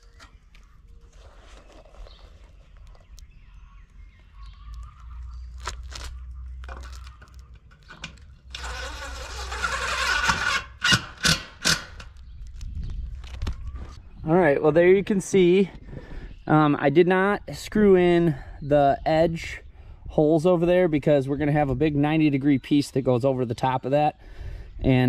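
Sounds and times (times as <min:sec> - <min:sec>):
sharp clicks and knocks: 0:06.6 - 0:08.7, 0:10.2 - 0:13.6
cordless driver spinning screw: 0:08.5 - 0:12.2.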